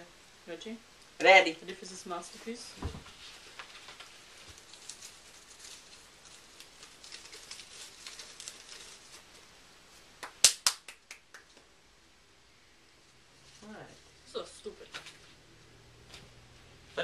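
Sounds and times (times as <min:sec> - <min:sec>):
paper rustling: 0:02.3 - 0:09.6, 0:14.7 - 0:15.4
hand claps: 0:10.2 - 0:11.7.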